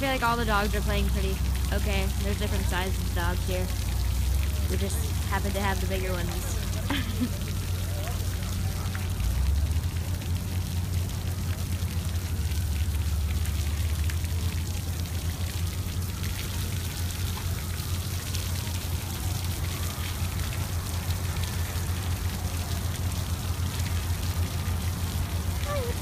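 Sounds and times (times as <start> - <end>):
sprinkler water spraying: 0.0 - 26.0.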